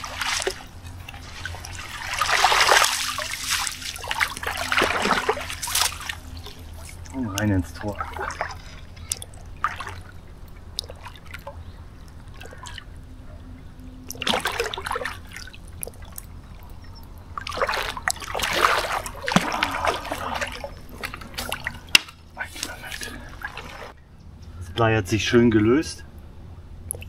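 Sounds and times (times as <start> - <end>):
water splashing and trickling: 0.0 - 24.0.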